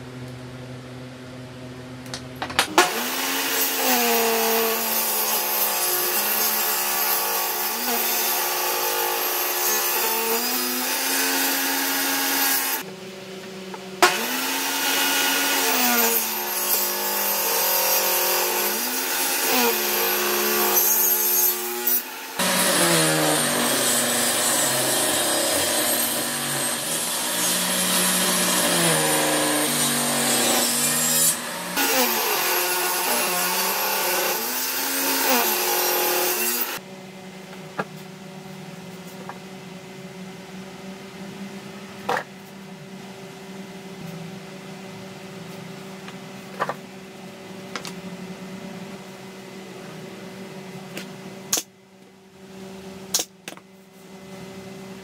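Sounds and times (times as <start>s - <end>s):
table saw cutting wood: 2.6s - 12.8s, 14.0s - 36.8s.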